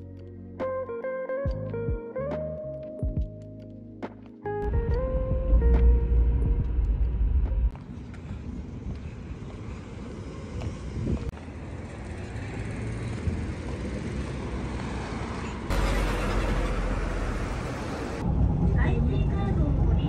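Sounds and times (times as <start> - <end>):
background music: 0.0 - 7.7
city traffic noise: 4.7 - 20.0.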